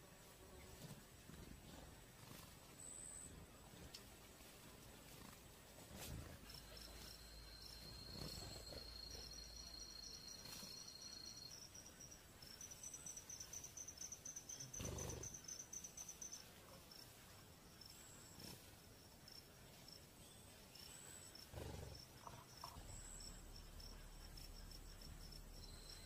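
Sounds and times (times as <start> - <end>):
fast pulsed insect trill: 6.4 - 17.0, 20.8 - 26.0
high-pitched insect tone: 6.4 - 17.0, 20.8 - 26.0.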